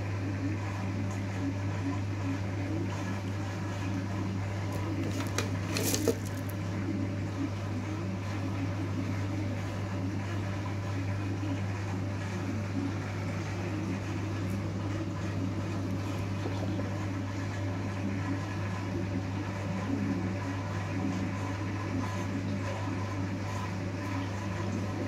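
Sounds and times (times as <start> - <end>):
scratchy rustle: 4.7 - 6.6.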